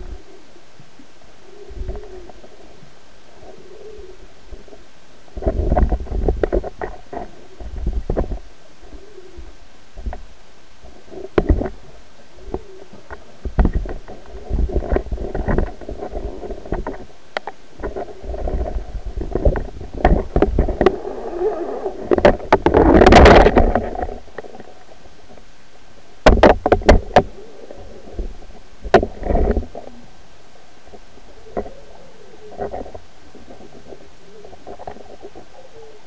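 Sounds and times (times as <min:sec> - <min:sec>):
camera housing scraping seabed: 0:05.4 - 0:08.4, 0:12.5 - 0:17.1, 0:17.8 - 0:24.8, 0:26.3 - 0:29.9, 0:32.5 - 0:35.4.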